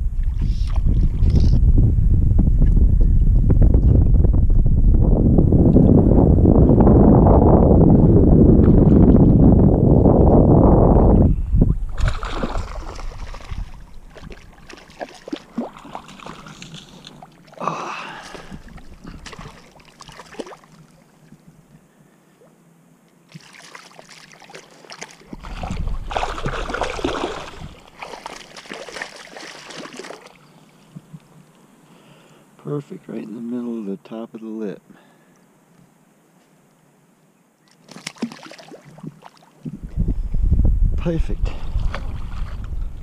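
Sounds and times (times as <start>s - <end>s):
water splashing and sloshing: 0.0s - 1.6s, 8.4s - 9.7s, 11.6s - 21.7s, 23.2s - 31.6s, 37.6s - 40.0s, 41.6s - 43.0s.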